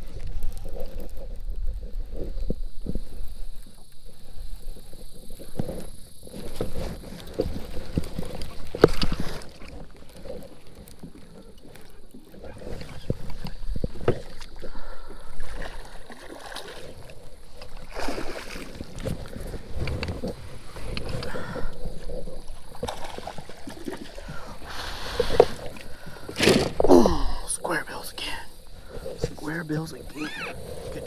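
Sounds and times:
water splashing against kayak: 0.0 - 31.0
knocks against hull: 26.3 - 26.9.

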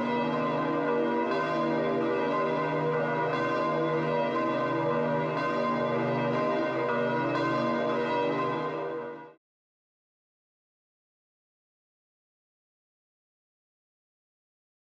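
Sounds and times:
church bells pealing: 0.0 - 9.4.

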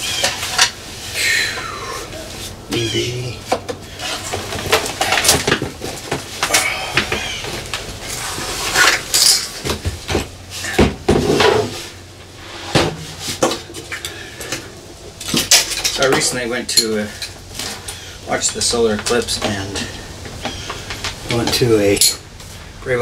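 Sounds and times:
metal case clanking and scraping: 8.1 - 11.9
cables rattling against metal: 13.3 - 22.3.

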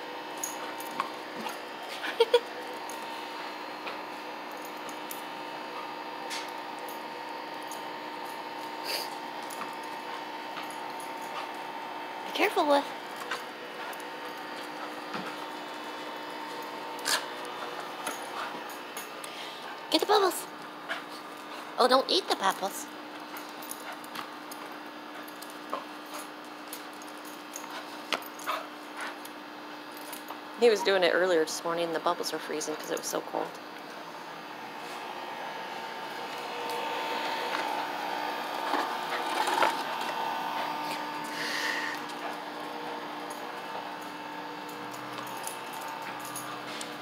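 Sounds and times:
fan motor humming: 0.0 - 47.0
chain and collar jingling: 22.3 - 29.1, 44.7 - 46.9.

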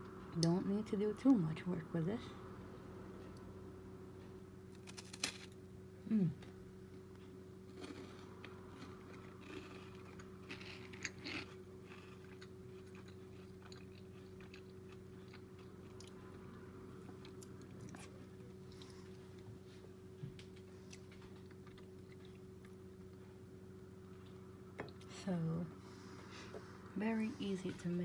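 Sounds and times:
faint steady hum: 0.0 - 28.0
chewing crunchy toast: 4.8 - 5.6, 7.6 - 16.4, 20.4 - 23.2.

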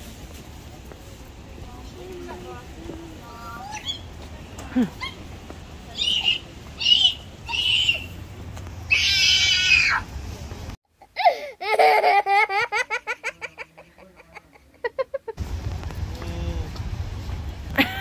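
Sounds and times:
person giggling: 11.6 - 15.4, 17.8 - 18.0.

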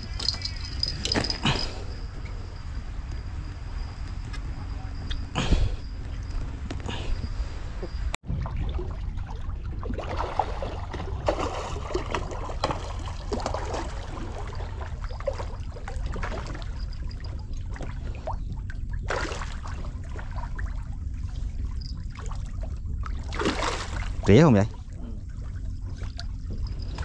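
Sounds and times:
water splashing and trickling: 0.0 - 2.6, 8.2 - 27.0
steady low rumble: 0.0 - 27.0.

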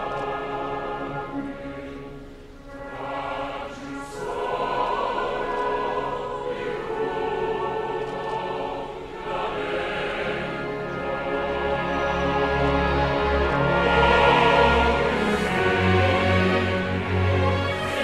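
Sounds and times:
choir singing held chords: 0.0 - 18.0.

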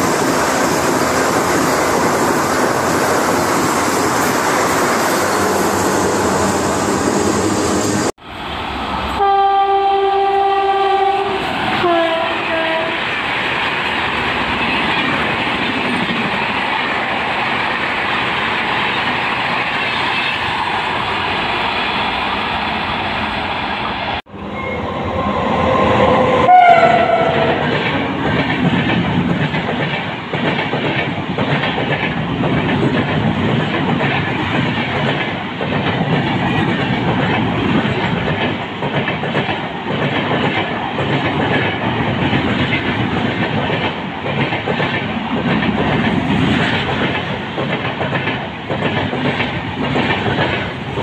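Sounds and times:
train wheels clattering over rails: 26.9 - 51.0.

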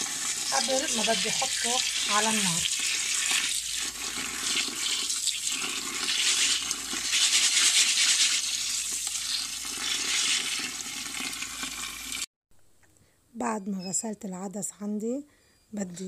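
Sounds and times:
lentils stirred by hand: 0.0 - 12.1
tap water running into bowl: 0.0 - 12.3.

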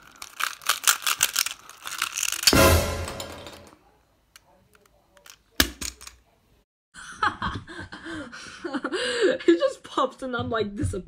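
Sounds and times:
puzzle cube pieces crashing apart: 0.0 - 3.7.

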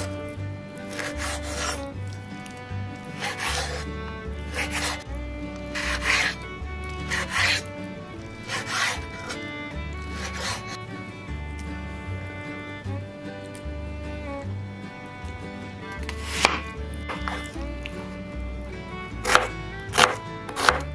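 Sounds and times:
background music: 0.0 - 20.9
knife scraping on cutting board: 0.8 - 1.8, 2.4 - 3.9, 4.5 - 5.0, 5.7 - 7.7, 8.4 - 9.4, 10.1 - 10.8, 16.1 - 17.6, 19.2 - 20.8.

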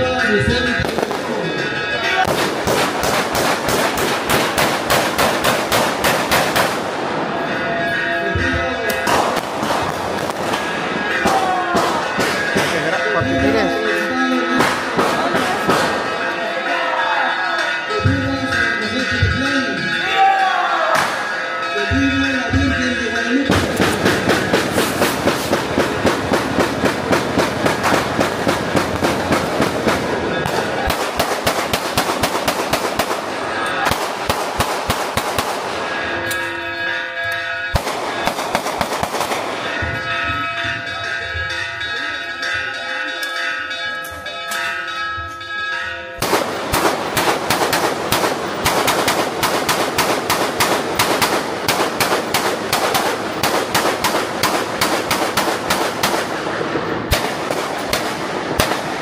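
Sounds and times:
bells ringing: 0.0 - 4.6, 6.6 - 59.0
firecrackers crackling: 0.0 - 16.4, 23.4 - 40.6, 46.2 - 59.0.

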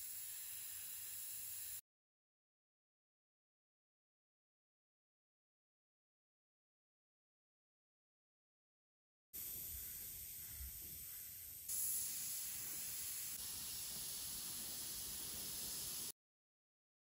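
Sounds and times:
airbrush hissing: 0.0 - 1.8, 9.4 - 16.2.

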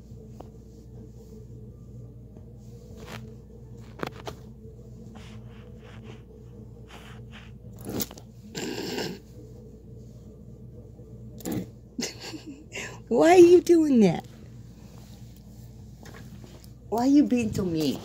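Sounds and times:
hand rubbing over fur: 0.0 - 8.5.

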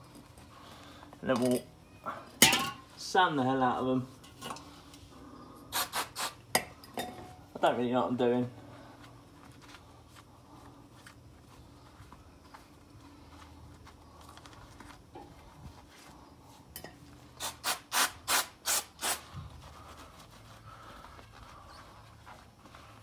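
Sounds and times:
aerosol spray squirts: 5.7 - 6.4
cloth wiping metal: 19.0 - 23.0.

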